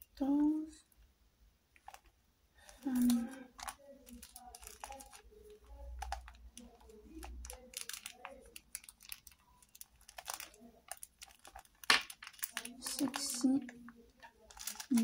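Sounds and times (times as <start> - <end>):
small objects clicking and rustling: 1.8 - 15.0.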